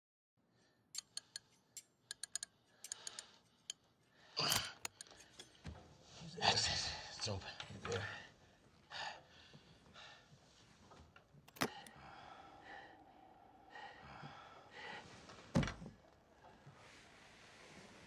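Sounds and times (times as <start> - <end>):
lock picking clicks: 1.0 - 3.8, 4.4 - 5.4, 11.4 - 11.9.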